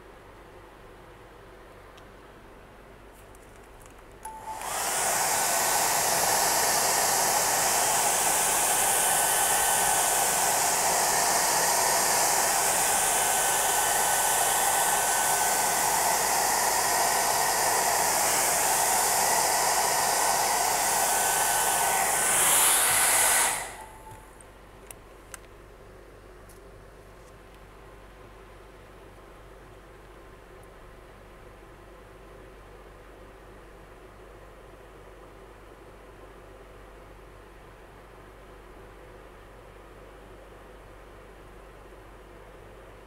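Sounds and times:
hair dryer blowing: 0:04.3 - 0:24.2.

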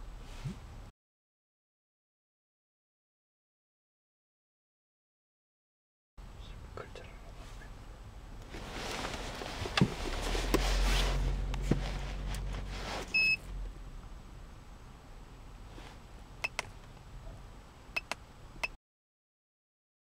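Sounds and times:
rustling handling noise: 0:08.4 - 0:13.6
short electronic beep: 0:13.1 - 0:13.4.

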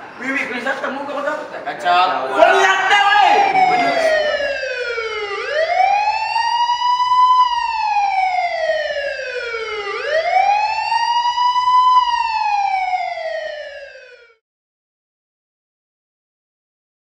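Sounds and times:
police siren wailing: 0:02.4 - 0:14.4.

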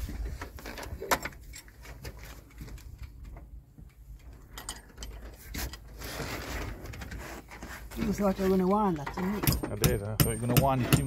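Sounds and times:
hand tools and screws clinking: 0:04.2 - 0:06.0, 0:08.9 - 0:11.0.

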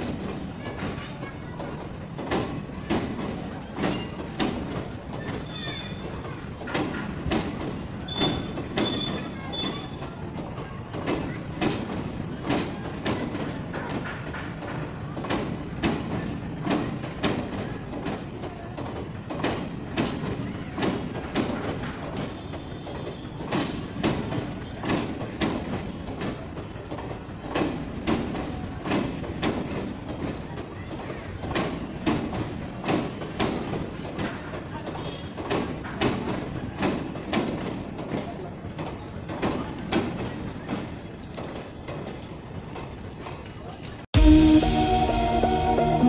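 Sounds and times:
train wheels clacking over rail joints: 0:00.0 - 0:44.1
steady train rumble: 0:00.0 - 0:46.0
faint high wheel squeal: 0:05.2 - 0:06.3, 0:08.0 - 0:10.1, 0:22.2 - 0:23.9.

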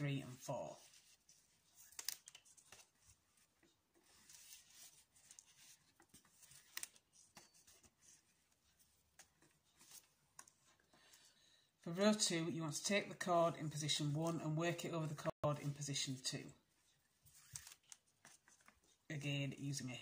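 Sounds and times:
cord rustling and ticking: 0:00.6 - 0:11.3, 0:16.8 - 0:19.1.

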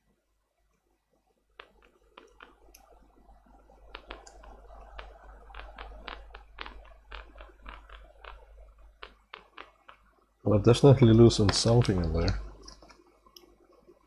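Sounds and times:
small plastic clicks and snaps: 0:01.6 - 0:03.0, 0:03.8 - 0:10.1.

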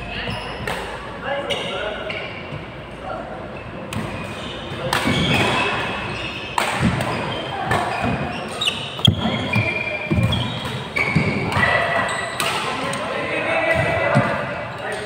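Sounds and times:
sneakers squeaking on court: 0:00.1 - 0:00.7, 0:04.0 - 0:12.5
racket hitting shuttlecock: 0:04.8 - 0:05.7, 0:06.5 - 0:09.3.

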